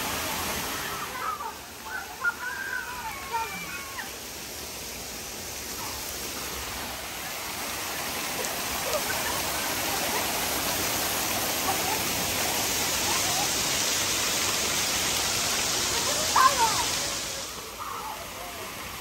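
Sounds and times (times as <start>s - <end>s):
water hissing: 0.0s - 19.0s.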